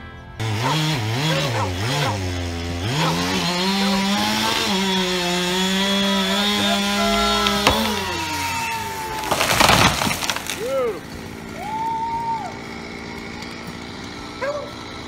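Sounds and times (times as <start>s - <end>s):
chainsaw revving: 0.4s - 15.0s
trunk cracking: 5.8s - 11.0s.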